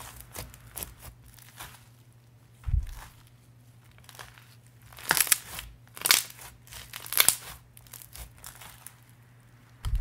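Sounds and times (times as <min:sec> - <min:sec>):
slime crackling and popping: 0:03.8 - 0:09.2.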